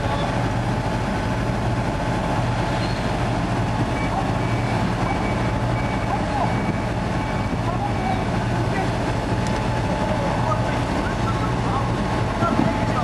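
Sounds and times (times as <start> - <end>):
boat diesel engine droning: 0.0 - 13.0.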